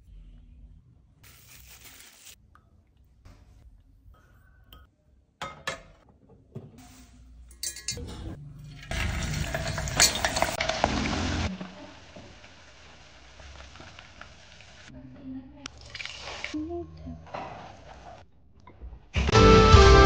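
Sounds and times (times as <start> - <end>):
kitchenware clinking: 4.8 - 6.4, 7.5 - 10.7
chicken deep-frying in hot oil: 8.9 - 14.9, 15.7 - 16.6.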